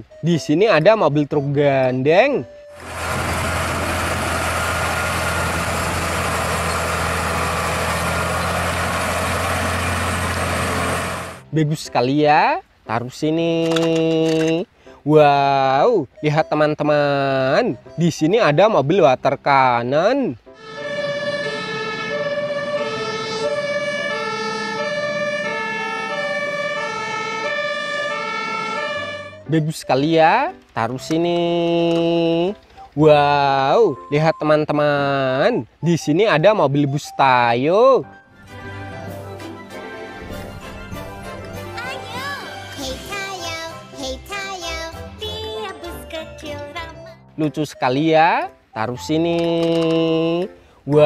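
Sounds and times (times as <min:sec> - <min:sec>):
truck diesel engine drone: 0:02.7 - 0:11.5, 0:20.5 - 0:29.4
road noise hiss: 0:02.8 - 0:11.6
two-tone siren: 0:20.6 - 0:29.5.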